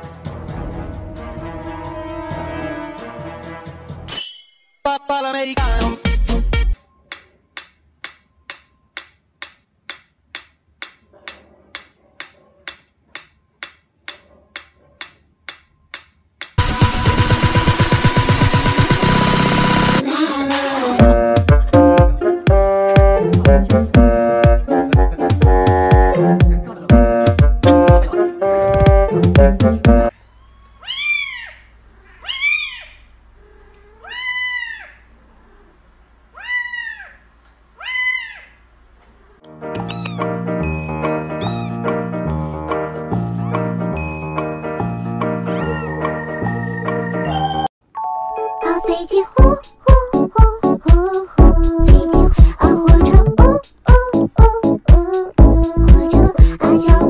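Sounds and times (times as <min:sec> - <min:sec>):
metronome ticking: 0:07.1 - 0:11.0
kitten meowing: 0:30.3 - 0:33.0, 0:33.7 - 0:34.9, 0:39.8 - 0:40.3, 0:41.4 - 0:41.9, 0:45.5 - 0:46.0.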